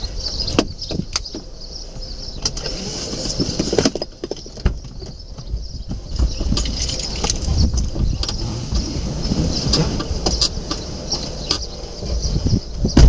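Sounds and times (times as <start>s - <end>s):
car engine idling: 4.0s - 13.0s.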